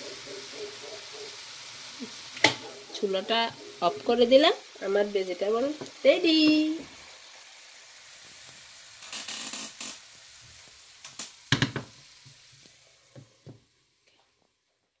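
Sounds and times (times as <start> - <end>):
vegetables sizzling in a pan: 0.0 - 15.0
pan knocking on stovetop: 11.5 - 12.0.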